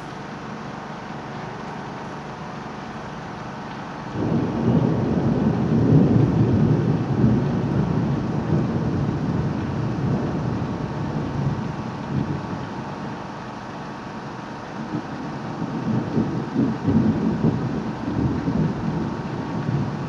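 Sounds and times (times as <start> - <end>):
heavy rain hissing: 0.0 - 20.0
thunder rumbling: 4.1 - 13.0, 14.8 - 20.0.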